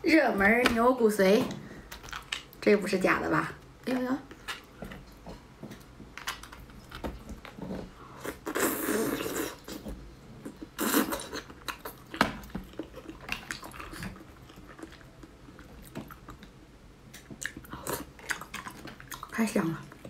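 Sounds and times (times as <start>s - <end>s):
chewing: 4.3s - 20.0s.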